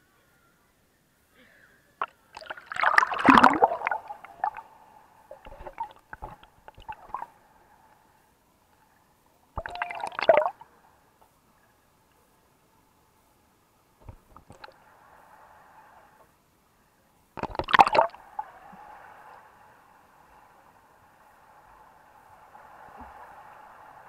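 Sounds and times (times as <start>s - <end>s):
loud splashing: 2.4s - 4.6s
muffled underwater bubbling: 2.4s - 4.7s, 9.6s - 10.6s, 17.4s - 18.2s
water sloshing and gurgling: 2.4s - 4.7s, 5.3s - 7.3s, 9.6s - 10.6s, 17.4s - 18.2s
underwater clicks: 17.4s - 18.2s.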